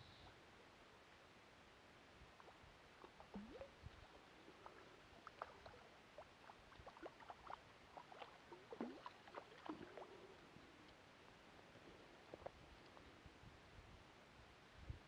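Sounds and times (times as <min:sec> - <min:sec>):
fish splashing in water: 0:02.4 - 0:10.2.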